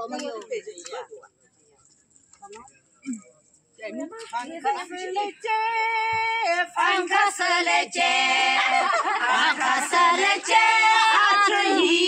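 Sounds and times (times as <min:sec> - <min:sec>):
voices singing together: 0:04.8 - 0:12.0.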